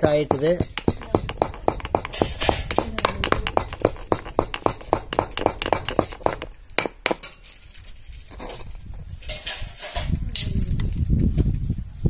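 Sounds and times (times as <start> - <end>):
louder pestle knocks: 0.0 - 7.2
stone pestle pounding in mortar: 0.0 - 7.3.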